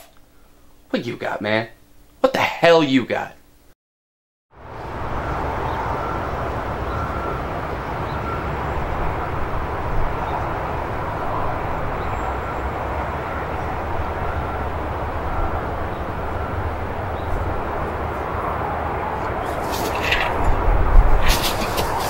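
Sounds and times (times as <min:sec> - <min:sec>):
distant traffic rumble: 0:04.6 - 0:22.0.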